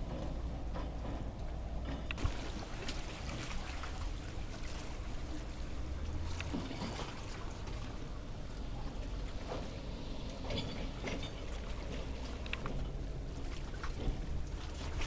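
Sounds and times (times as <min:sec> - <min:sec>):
wind and water rumble: 0:00.0 - 0:15.0.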